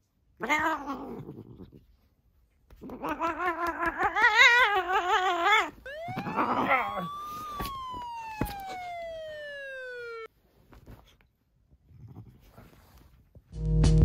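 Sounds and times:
cat growling yowl: 0:00.4 - 0:01.8, 0:02.8 - 0:07.1
siren-like warning tone: 0:05.8 - 0:10.3.

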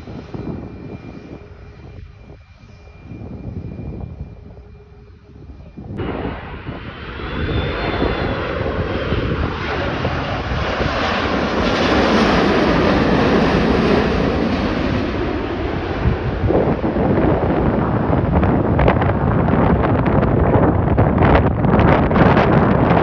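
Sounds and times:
faint high whine: 0:00.0 - 0:11.2
jet plane passing overhead: 0:00.0 - 0:23.0.

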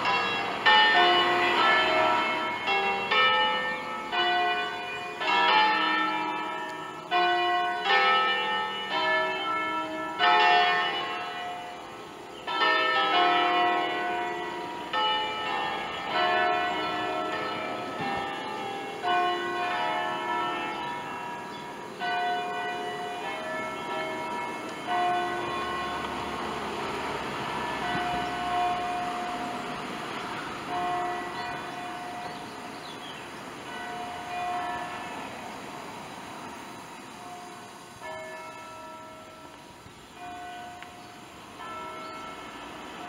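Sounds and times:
church bells ringing: 0:00.0 - 0:43.0.

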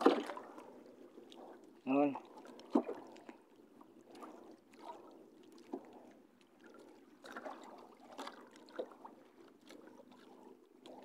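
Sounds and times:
soft water slaps: 0:00.0 - 0:11.0
water lapping against boat hull: 0:00.0 - 0:11.0.

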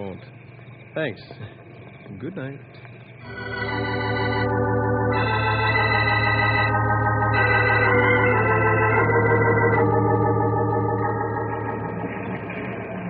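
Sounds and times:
organ holding chords: 0:03.2 - 0:13.0.

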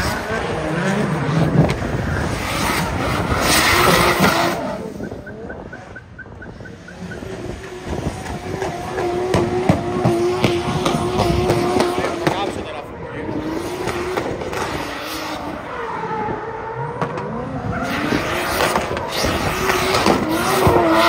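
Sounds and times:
car engine at high revs: 0:00.0 - 0:21.0
exhaust pops and crackles: 0:05.1 - 0:12.7, 0:17.0 - 0:17.3, 0:18.5 - 0:20.8.

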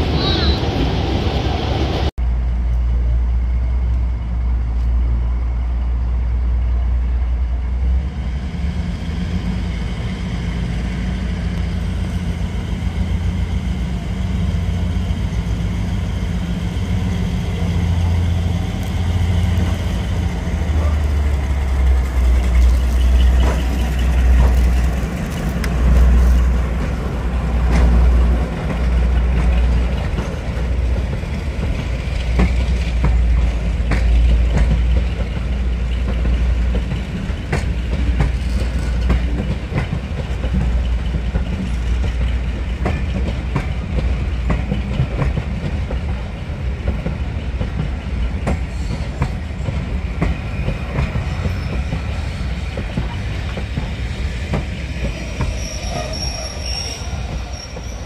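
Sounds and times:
diesel locomotive engine throbbing: 0:00.0 - 0:58.0.

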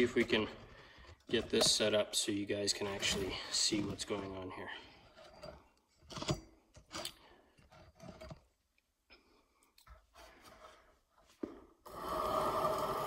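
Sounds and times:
handling clicks and knocks: 0:00.0 - 0:02.0.

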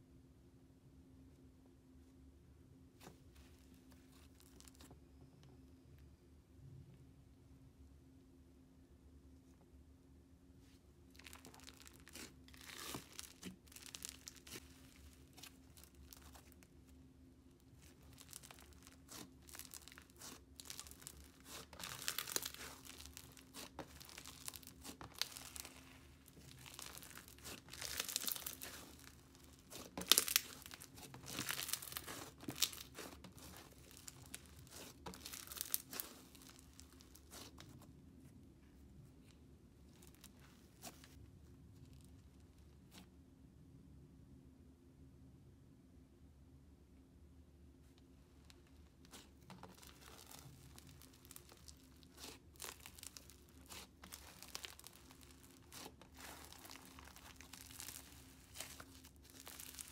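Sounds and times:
sticky slime crackling: 0:03.0 - 0:05.0, 0:11.1 - 0:17.0, 0:17.6 - 0:37.9, 0:48.6 - 0:59.9.

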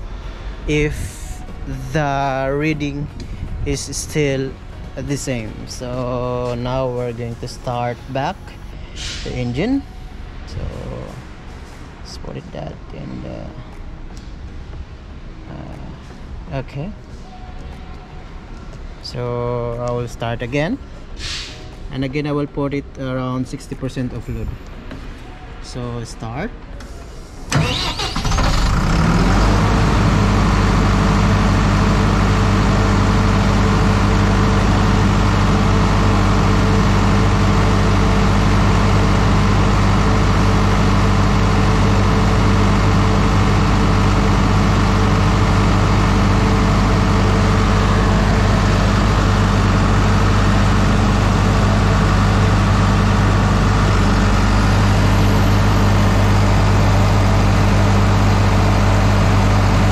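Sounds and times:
diesel generator engine running: 0:00.0 - 0:13.8, 0:27.4 - 0:59.9.

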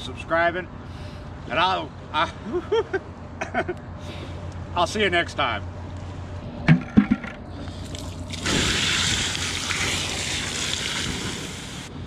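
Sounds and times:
rush of water: 0:07.8 - 0:11.9.

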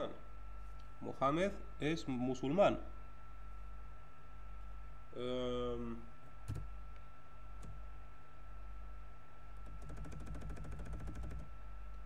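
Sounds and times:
faint electrical hum: 0:00.0 - 0:12.0
computer keyboard keys clicking: 0:09.6 - 0:11.5.

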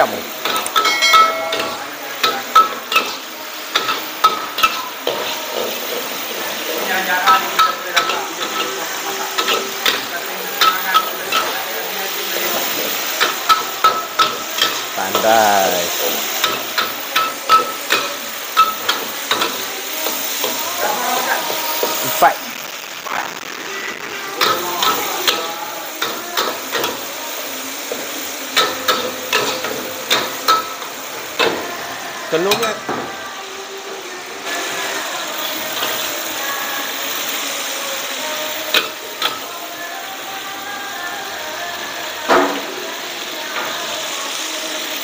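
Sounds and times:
meat sizzling in oil in a wok: 0:00.0 - 0:45.0
metal spatula clanking on a wok: 0:00.4 - 0:05.2.

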